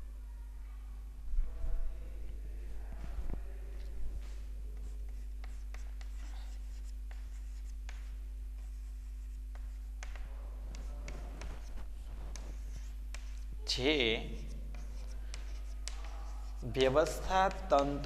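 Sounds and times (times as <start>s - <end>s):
low electrical hum: 0.0s - 18.0s
chalk writing on chalkboard: 4.2s - 18.0s.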